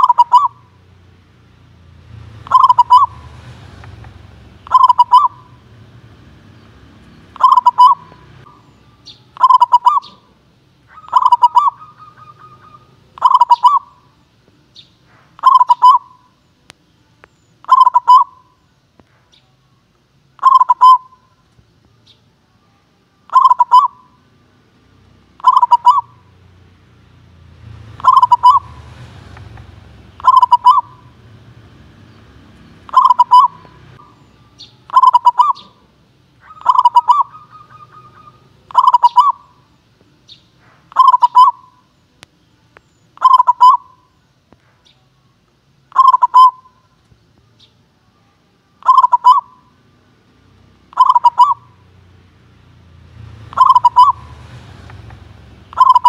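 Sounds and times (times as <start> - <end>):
dove cooing: 0.0 - 0.8, 2.2 - 5.9, 7.2 - 14.1, 15.3 - 16.3, 17.6 - 18.5, 20.4 - 21.3, 23.3 - 24.2, 25.4 - 26.3, 27.9 - 39.7, 40.8 - 41.8, 43.2 - 44.1, 45.9 - 46.8, 48.8 - 49.7, 50.9 - 51.8, 53.3 - 56.0.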